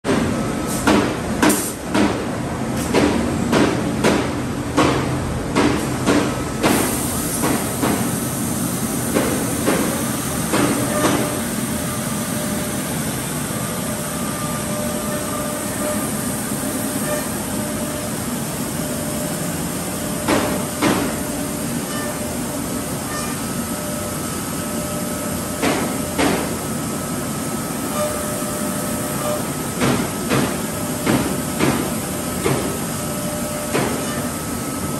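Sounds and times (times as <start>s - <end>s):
router machine hiss and hum: 6.7s - 34.9s
sharp machine clunks: 9.1s - 11.4s.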